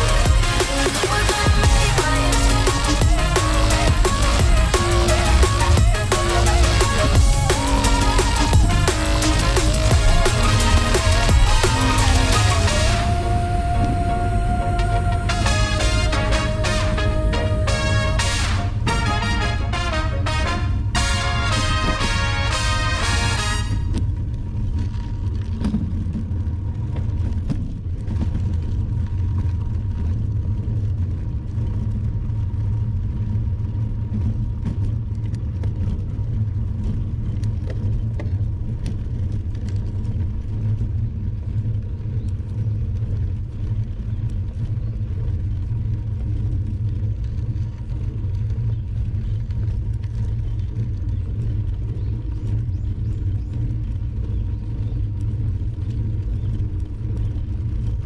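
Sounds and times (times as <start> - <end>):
bicycle road noise: 0.0 - 58.0
wind rumble: 0.0 - 58.0.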